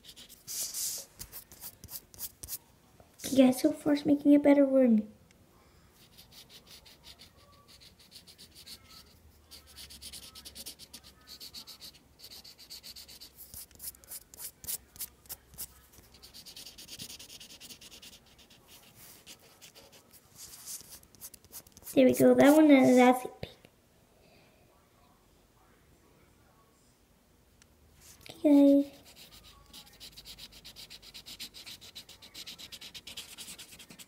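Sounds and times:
marker scribbling on paper: 0:00.0 - 0:02.6, 0:06.0 - 0:23.0, 0:29.0 - 0:34.0.

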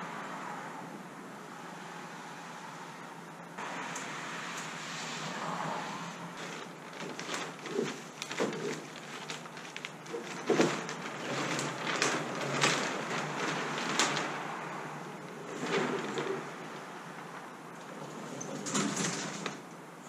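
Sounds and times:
sailcloth rustling: 0:06.2 - 0:19.7.

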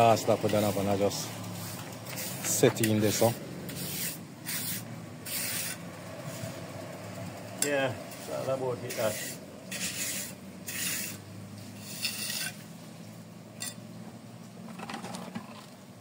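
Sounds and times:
trowel scraping wet concrete: 0:00.0 - 0:05.8, 0:08.1 - 0:12.8.

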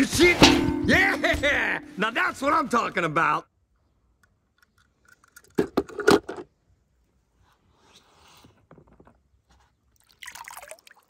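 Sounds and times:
soft scraping rustle: 0:07.2 - 0:09.8.

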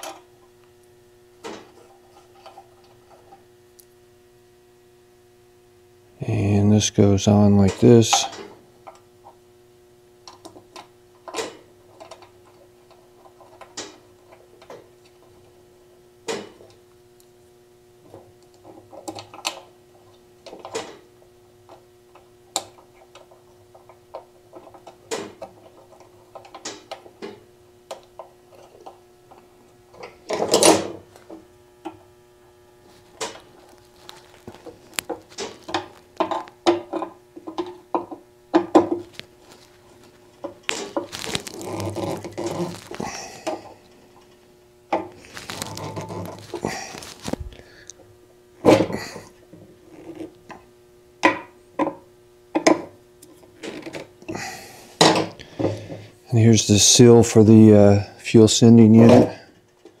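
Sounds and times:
steady low hum: 0:00.0 - 1:00.0
rustling handling: 0:32.8 - 0:36.6, 0:39.0 - 0:44.4, 0:45.1 - 0:47.9.

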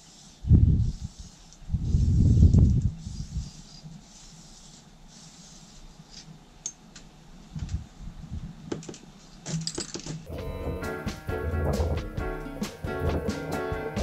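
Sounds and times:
background music: 0:10.3 - 0:14.0.

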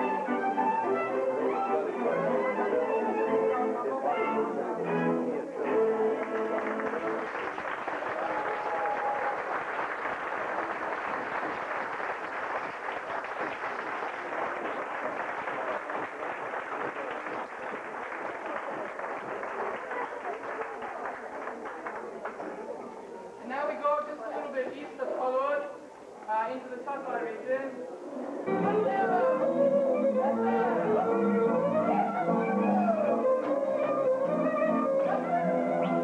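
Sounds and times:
folk string band playing: 0:00.0 - 0:07.2, 0:28.3 - 0:36.0
audience applauding: 0:05.9 - 0:23.2.

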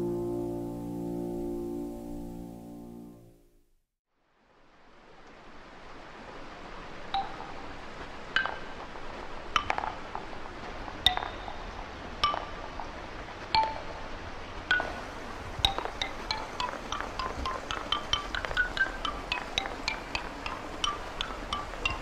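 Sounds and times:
steady hiss: 0:04.2 - 0:22.0
wooden xylophone notes: 0:07.2 - 0:07.5, 0:08.4 - 0:08.8, 0:09.6 - 0:10.2, 0:11.0 - 0:12.8, 0:13.5 - 0:14.0, 0:14.7 - 0:22.0.

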